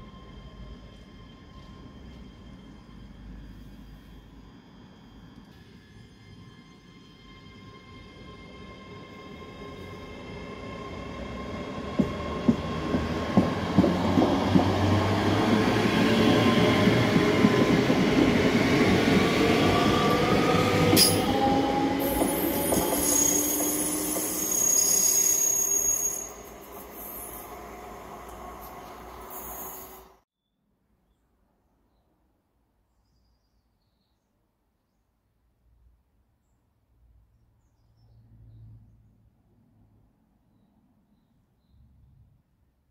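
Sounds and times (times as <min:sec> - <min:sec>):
electric train passing: 0:00.0 - 0:30.2.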